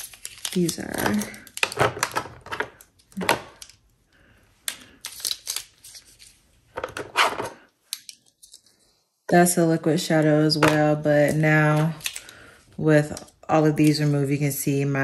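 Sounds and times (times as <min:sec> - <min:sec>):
plastic tubes clicking and clattering: 0:00.0 - 0:03.8.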